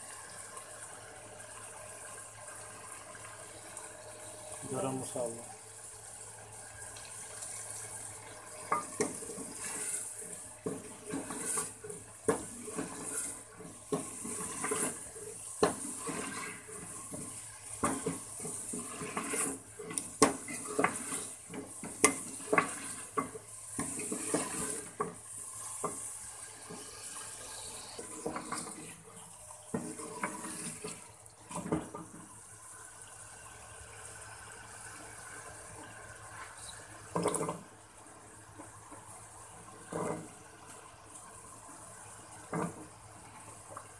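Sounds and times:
curry sizzling: 0:00.0 - 0:43.9
spoon scraping a metal pot: 0:08.7 - 0:16.9, 0:17.9 - 0:23.2, 0:23.8 - 0:25.0, 0:27.5 - 0:29.0.

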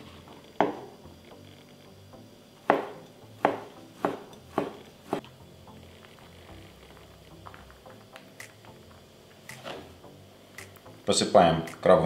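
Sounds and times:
knife chopping on cutting board: 0:02.6 - 0:05.2.

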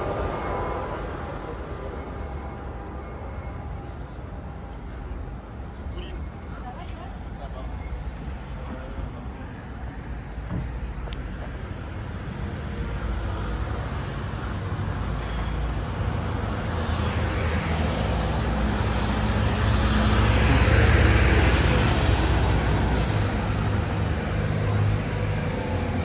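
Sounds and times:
road noise: 0:00.0 - 0:26.0
vehicle engine approaching: 0:11.3 - 0:26.0.

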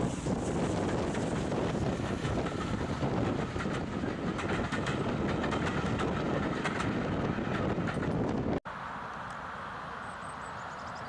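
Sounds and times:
train wheels rumbling on rail: 0:00.0 - 0:08.6
wheels clicking over rail joints: 0:00.3 - 0:08.6.

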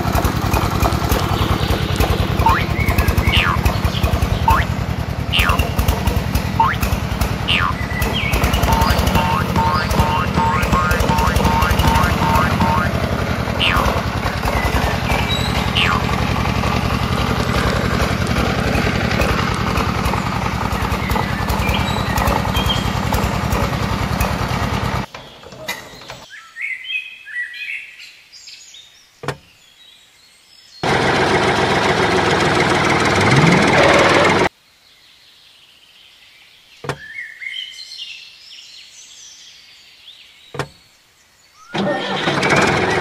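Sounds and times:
small motor buzzing rattle: 0:00.0 - 0:25.1, 0:41.8 - 0:43.0
birds chirping: 0:00.6 - 0:30.8, 0:34.8 - 0:42.4.

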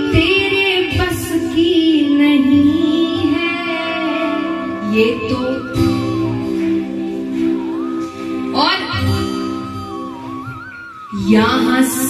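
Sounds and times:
woman singing devotional song: 0:00.0 - 0:07.1, 0:11.1 - 0:12.0
instrumental accompaniment: 0:00.0 - 0:12.0.

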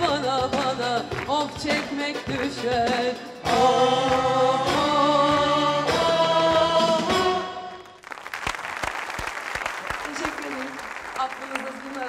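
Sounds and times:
band and singers holding chords: 0:00.0 - 0:08.0
applause: 0:07.8 - 0:12.0.

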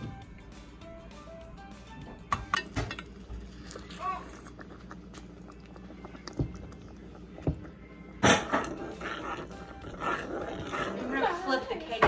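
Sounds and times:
metal spoon stirring thick icing: 0:08.4 - 0:12.0.

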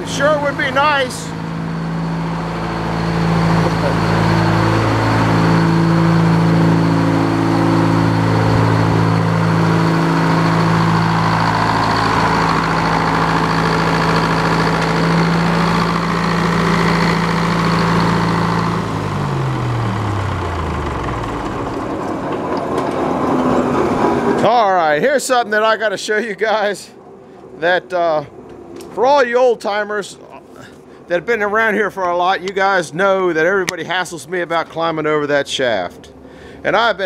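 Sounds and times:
sawmill engine idling: 0:00.0 - 0:24.8.

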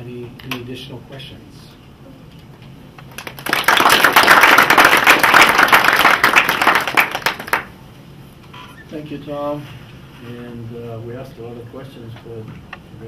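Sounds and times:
audience applauding: 0:03.1 - 0:07.7.

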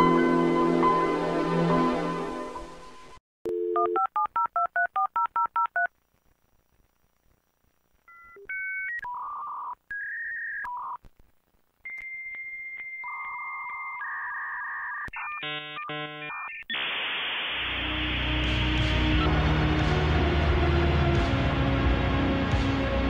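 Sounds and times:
dial tone: 0:03.5 - 0:05.9, 0:11.9 - 0:16.6.

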